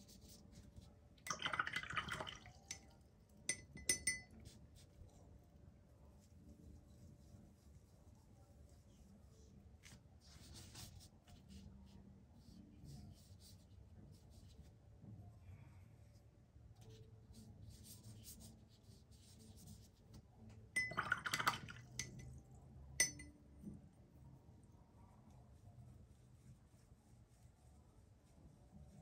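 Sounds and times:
brush brushing on paper: 0:00.0 - 0:03.4, 0:04.3 - 0:14.8, 0:16.1 - 0:20.2, 0:25.5 - 0:29.0
brush clinking against glass: 0:03.5 - 0:04.6, 0:20.8 - 0:22.4, 0:23.0 - 0:23.3.

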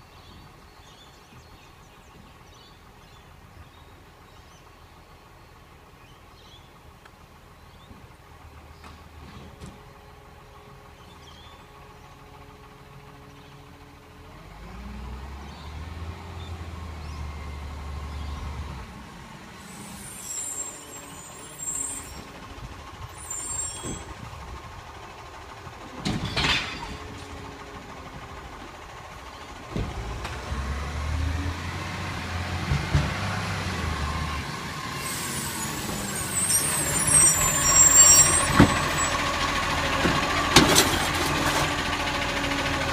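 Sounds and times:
garbage truck diesel engine: 0:00.0 - 0:42.9
air brakes hissing: 0:19.6 - 0:22.4, 0:23.1 - 0:24.3, 0:34.9 - 0:39.2.

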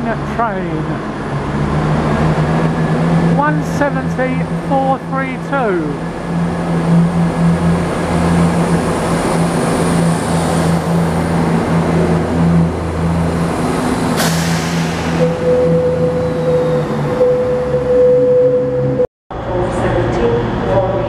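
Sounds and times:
diesel engines humming: 0:00.0 - 0:21.0
steady high tone: 0:14.5 - 0:19.1.

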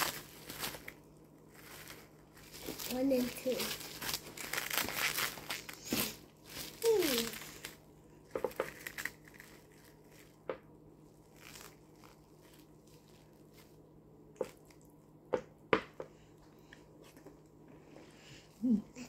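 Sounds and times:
plastic film crinkling: 0:00.0 - 0:13.8.

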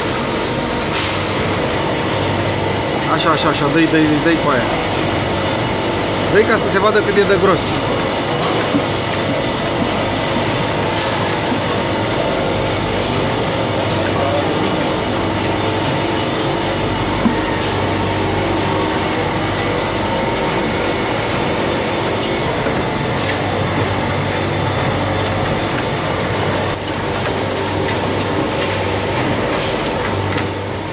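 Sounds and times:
machinery humming and hissing: 0:00.0 - 0:30.9.

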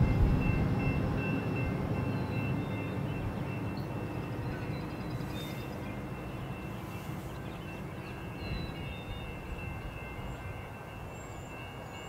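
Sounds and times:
train rumble: 0:00.0 - 0:12.0
birds chirping: 0:00.4 - 0:12.0.

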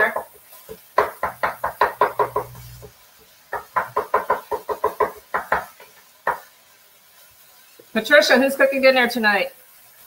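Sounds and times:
utensil chopping knocks: 0:00.1 - 0:02.5.

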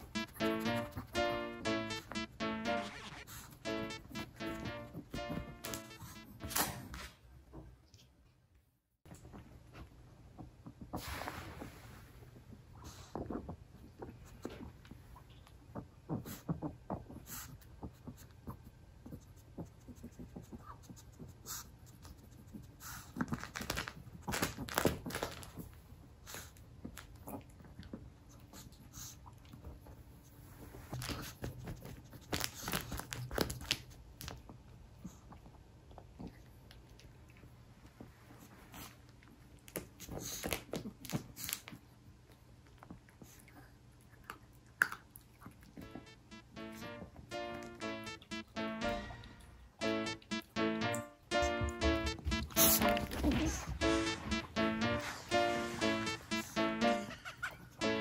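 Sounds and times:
dog sniffing and chewing: 0:15.7 - 0:34.0, 0:35.0 - 0:41.8
dog sniffing and snuffling: 0:16.1 - 0:23.6, 0:40.0 - 0:41.7.

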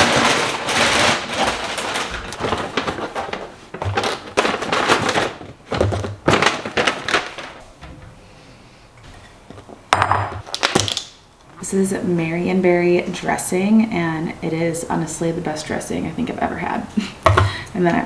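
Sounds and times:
packaging rustling and knocking: 0:00.0 - 0:07.6, 0:09.5 - 0:11.1
containers clattering: 0:00.0 - 0:08.0.

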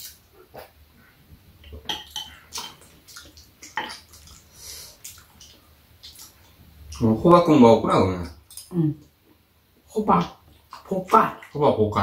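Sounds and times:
mouth smacks from chewing: 0:02.2 - 0:07.0.

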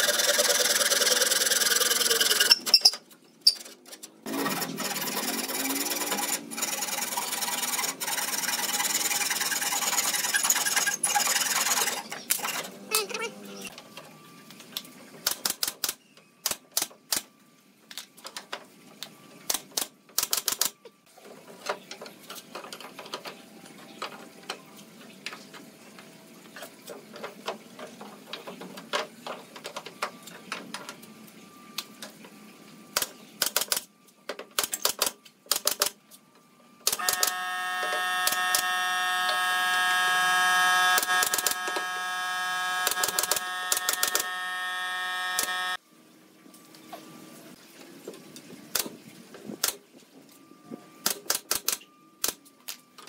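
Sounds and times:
pitched hum of several tones: 0:08.8 - 0:14.4, 0:36.9 - 0:45.8
pneumatic nail gun firing: 0:36.9 - 0:38.7, 0:40.8 - 0:41.9, 0:42.8 - 0:44.4.

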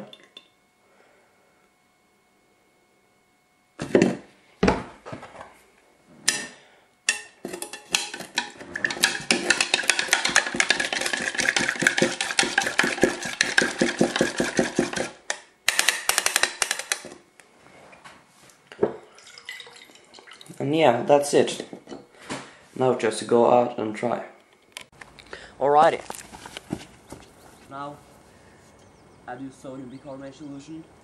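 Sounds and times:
utensil clattering in a container: 0:07.1 - 0:15.2, 0:15.8 - 0:17.2.

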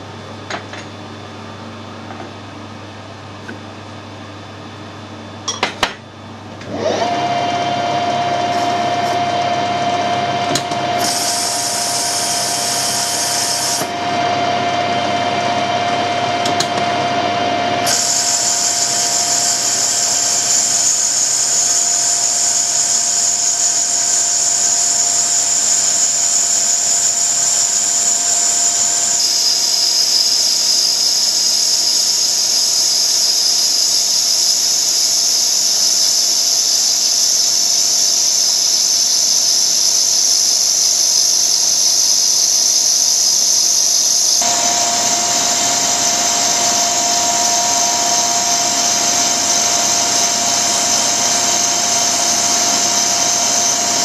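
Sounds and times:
metal lathe whining: 0:06.6 - 0:54.0
high-pitched cutting hiss: 0:17.9 - 0:32.7.

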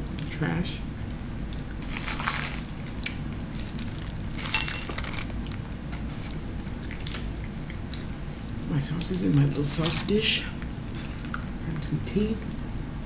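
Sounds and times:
food packaging crinkling: 0:01.8 - 0:06.4.

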